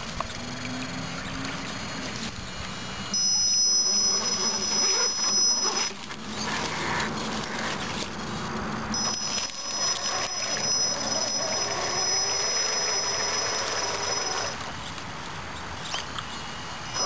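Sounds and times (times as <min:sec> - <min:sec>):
tires sloshing through water: 0:00.0 - 0:03.0, 0:05.9 - 0:13.1
electric motor whine: 0:00.0 - 0:15.0, 0:15.8 - 0:17.0.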